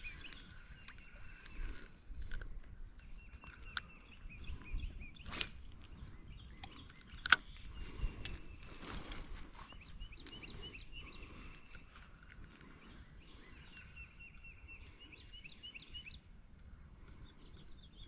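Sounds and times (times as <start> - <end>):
outdoor background noise: 0.0 - 18.0
small birds chirping: 0.0 - 18.0
sharp clicks: 6.6 - 8.5.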